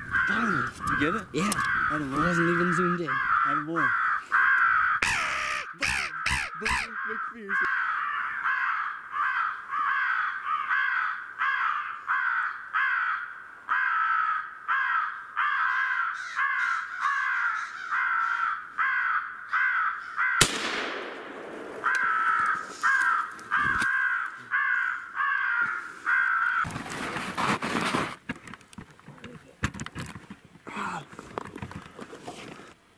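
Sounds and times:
crows cawing: 0.0s - 26.7s
sharp crack: 20.4s - 24.0s.

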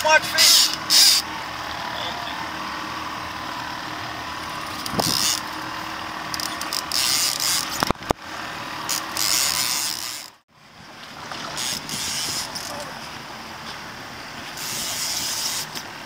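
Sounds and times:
fishing reel ratchet whirring: 0.3s - 1.3s, 4.4s - 5.7s, 6.3s - 7.9s, 8.8s - 10.4s, 11.5s - 12.8s, 14.6s - 15.8s.

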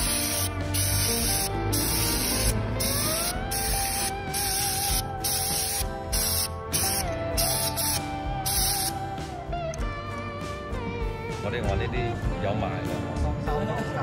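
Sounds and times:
paint spray hissing in bursts: 0.0s - 9.0s.

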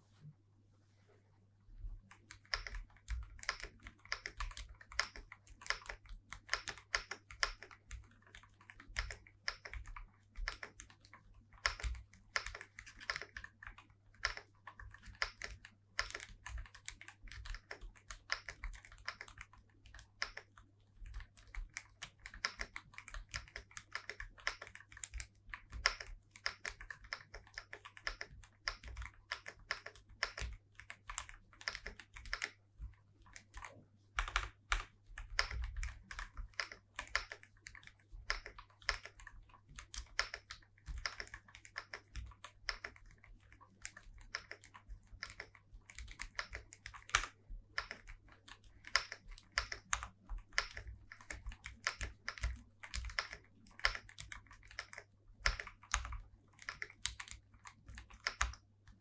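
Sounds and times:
mechanical keyboard typing: 2.0s - 59.0s.

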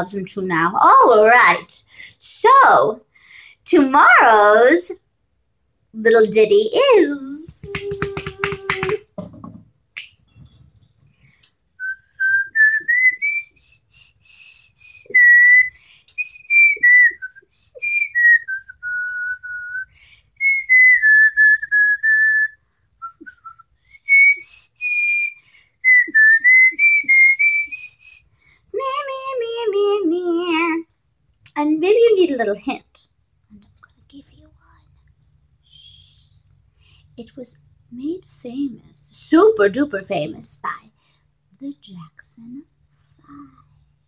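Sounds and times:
woman tooth-whistling a melody: 7.1s - 9.0s, 11.8s - 28.3s, 35.6s - 36.4s.

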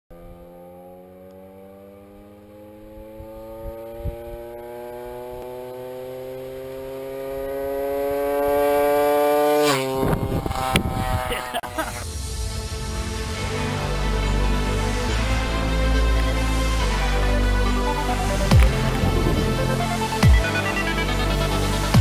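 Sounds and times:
scooter engine buzzing past: 0.1s - 12.0s, 18.2s - 22.0s.

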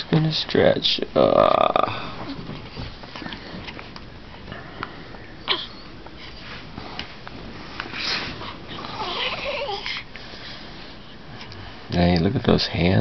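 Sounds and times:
baby whimpering: 5.4s - 5.9s, 8.5s - 10.1s
baby squeaking: 9.0s - 10.0s.

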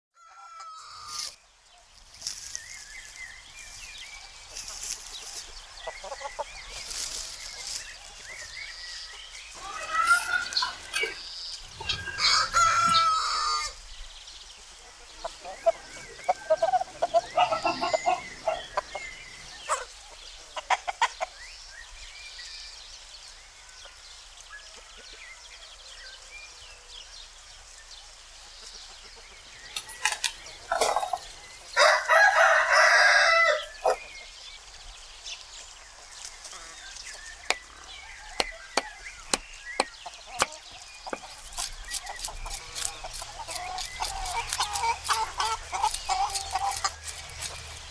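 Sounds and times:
roosters crowing: 0.2s - 1.4s, 9.6s - 13.8s, 15.5s - 19.9s, 30.6s - 34.1s, 41.2s - 47.9s
chickens clucking: 4.5s - 8.5s, 9.6s - 13.7s, 14.8s - 21.4s, 28.6s - 34.4s, 37.5s - 47.9s.

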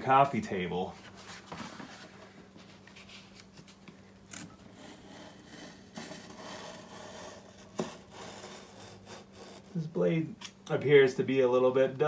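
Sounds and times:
knife cutting through board: 4.3s - 9.8s.

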